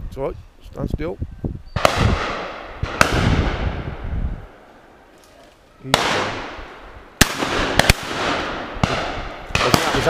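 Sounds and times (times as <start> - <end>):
shotgun shots echoing: 1.8 - 4.7, 5.9 - 10.0.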